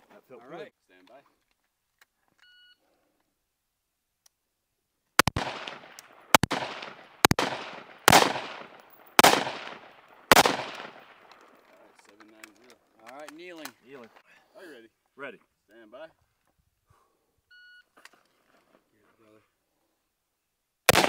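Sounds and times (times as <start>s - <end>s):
rifle shots with ringing echo: 5.2s - 11.4s.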